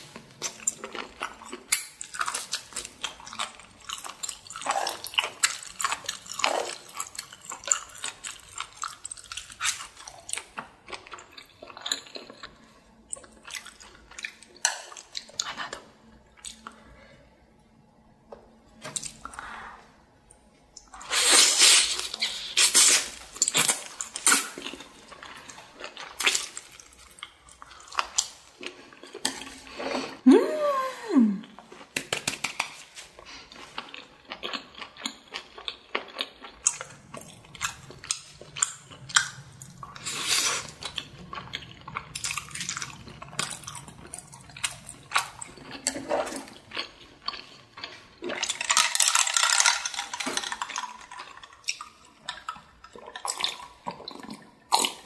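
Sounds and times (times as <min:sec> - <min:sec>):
wet chewing of noodles: 0:00.0 - 0:17.5, 0:18.5 - 0:30.2, 0:31.4 - 0:55.0
person humming: 0:30.2 - 0:31.5.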